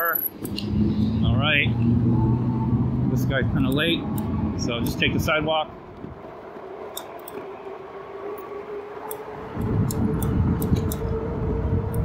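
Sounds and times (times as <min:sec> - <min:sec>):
electric bike motor whining: 0:00.4 - 0:12.0
low rumble: 0:00.4 - 0:12.0.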